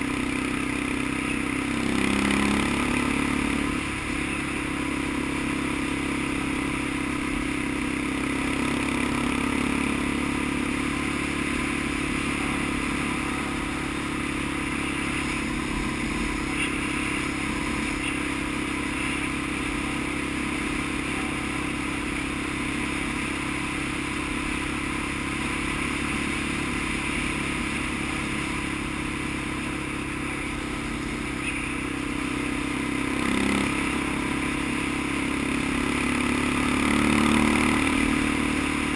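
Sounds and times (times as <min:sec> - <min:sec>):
off-road vehicle engine running: 0:00.0 - 0:38.9
rough-road rattle: 0:00.0 - 0:38.9.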